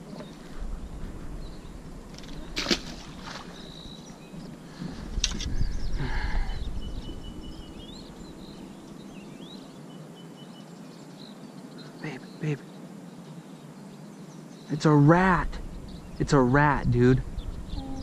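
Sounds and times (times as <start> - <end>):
faint bird chirps: 1.3 - 16.5, 17.1 - 18.0
fish splashing into water: 2.5 - 3.6
low rumbling noise: 14.8 - 18.0.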